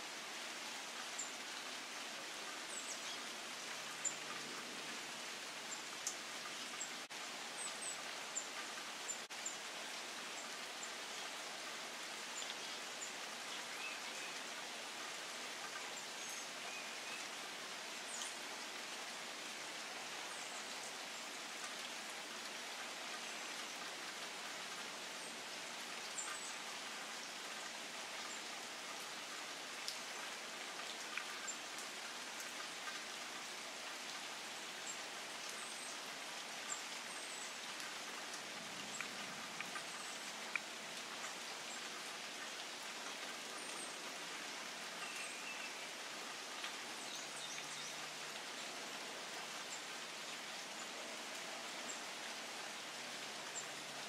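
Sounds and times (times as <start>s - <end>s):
rain on foliage: 0.0s - 54.0s
water drips: 37.0s - 43.8s.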